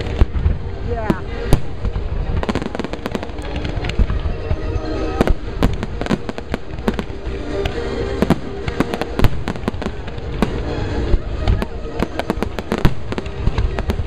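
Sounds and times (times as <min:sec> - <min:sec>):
fireworks bursting with bangs: 0:00.0 - 0:14.0
music playing: 0:00.0 - 0:14.0.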